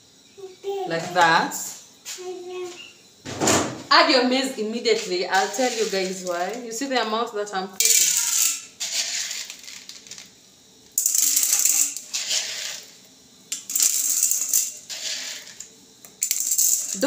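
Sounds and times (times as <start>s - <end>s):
popcorn kernels rattling in metal pot: 4.9s - 6.7s, 7.8s - 10.4s, 11.0s - 17.0s.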